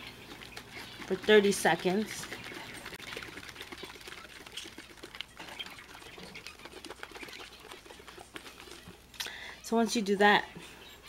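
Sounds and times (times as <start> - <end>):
spray can being shaken: 0.4 - 9.1.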